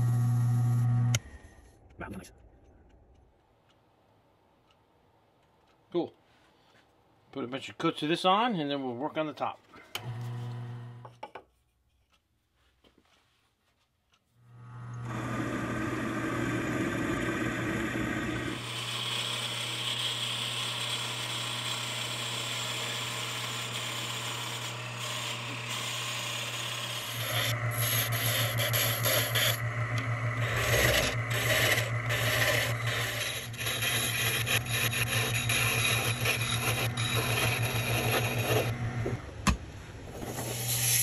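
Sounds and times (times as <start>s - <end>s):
wood lathe motor hum: 14.4s - 39.3s
turning tool scraping wood: 18.2s - 39.2s
bit boring into wood: 26.9s - 38.8s.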